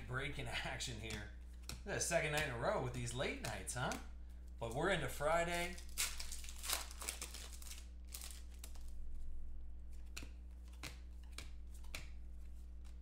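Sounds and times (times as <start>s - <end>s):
steady low hum: 0.0s - 13.0s
cards rustling and clicking: 0.8s - 13.0s
foil wrapper crinkling and tearing: 5.5s - 8.9s.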